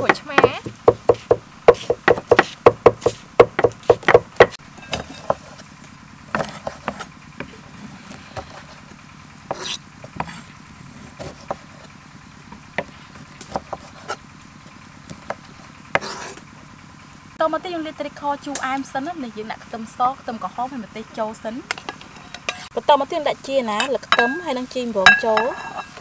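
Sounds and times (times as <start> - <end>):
cleaver chopping on wooden block: 0.0 - 5.6, 6.3 - 7.1, 9.5 - 10.4, 12.8 - 14.2, 15.1 - 16.4
cleaver slicing limes: 0.0 - 5.7, 6.3 - 8.9, 9.5 - 11.9, 12.8 - 14.2, 15.1 - 16.4.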